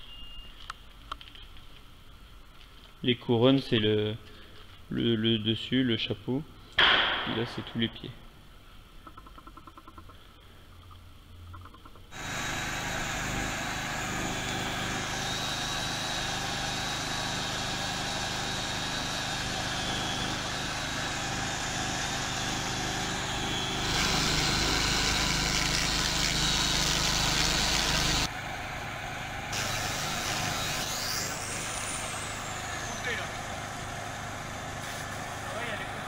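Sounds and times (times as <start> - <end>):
loud hissing noise: 12.1 - 36.0
petrol generator running: 12.1 - 36.0.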